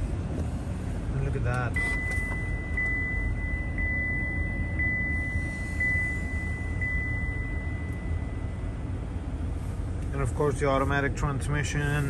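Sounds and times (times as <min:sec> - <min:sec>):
engine idling and blower rumble: 0:00.0 - 0:12.0
high-pitched steady tone: 0:01.8 - 0:09.0.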